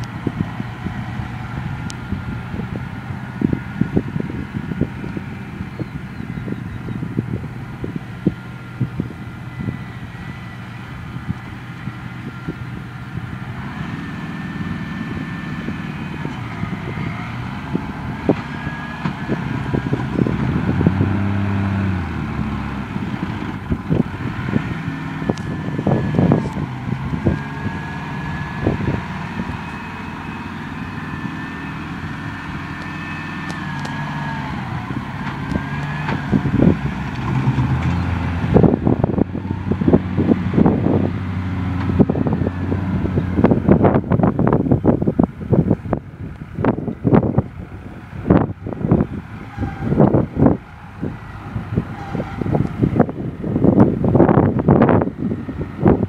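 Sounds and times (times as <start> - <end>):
distant tractor diesel engines: 0.0 - 56.0
whining tones: 0.0 - 56.0.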